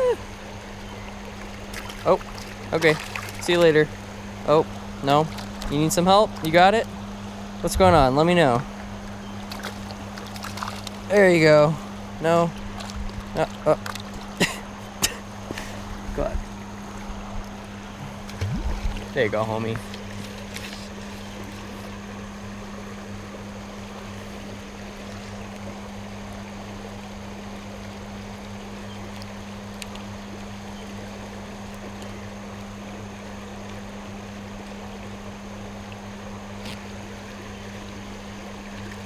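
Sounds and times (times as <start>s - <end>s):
water rushing over rocks: 0.0s - 22.2s
low electrical hum: 0.0s - 39.0s
faint ticks: 29.1s - 30.1s.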